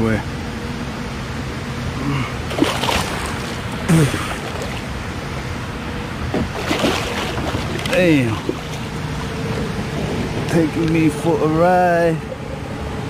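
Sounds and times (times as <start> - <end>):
water sloshing around kayak: 2.4 - 11.2
man's short vocal sounds: 3.9 - 4.4
wind rumbling on microphone: 6.2 - 11.5.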